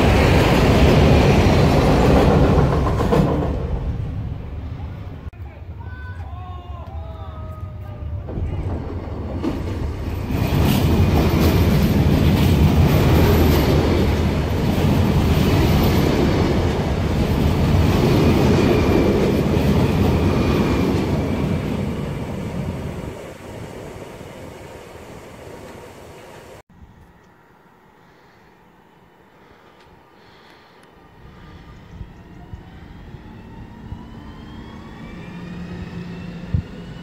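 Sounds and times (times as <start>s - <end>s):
train passing: 0.0s - 6.0s, 6.7s - 37.0s.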